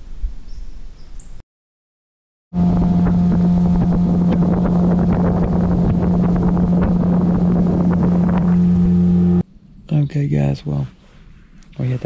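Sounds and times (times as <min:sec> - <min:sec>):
boat motor humming: 0:02.5 - 0:09.4
wind on microphone: 0:02.6 - 0:09.4.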